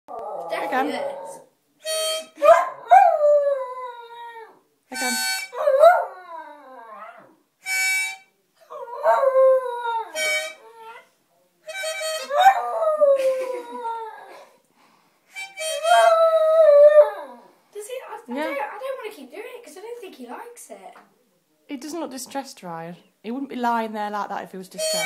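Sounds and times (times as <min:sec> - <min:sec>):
dog howling: 0:00.1 - 0:01.5, 0:05.5 - 0:07.4, 0:08.7 - 0:11.1, 0:12.2 - 0:14.3, 0:15.8 - 0:17.5
harmonica notes: 0:01.8 - 0:02.5, 0:04.9 - 0:05.6, 0:07.6 - 0:08.3, 0:10.1 - 0:11.0, 0:11.6 - 0:12.4, 0:15.3 - 0:16.3, 0:24.8 - 0:25.0.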